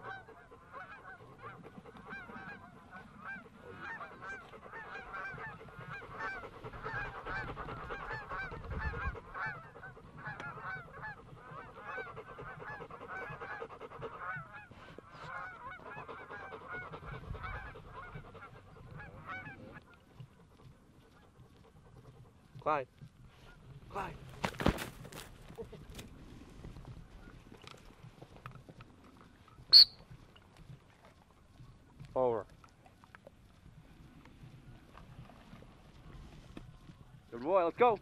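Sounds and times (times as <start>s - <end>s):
geese honking: 0.0s - 19.8s, 29.7s - 30.0s.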